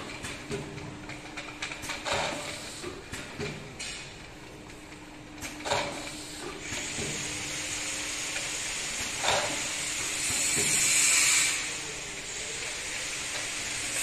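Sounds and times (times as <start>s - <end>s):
hiss: 6.2s - 14.0s.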